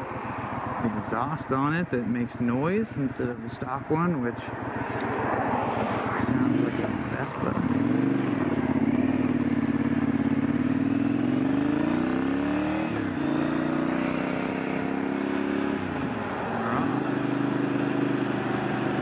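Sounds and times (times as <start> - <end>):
motorcycle engine accelerating: 4.5 - 19.0.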